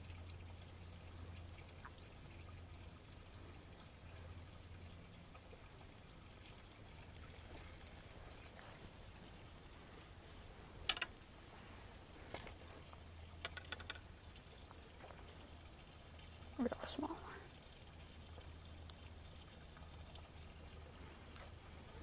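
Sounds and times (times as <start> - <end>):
faint low rumble: 0.0 - 13.4
fishing pole clicks and rattles: 10.8 - 11.3, 13.3 - 14.2.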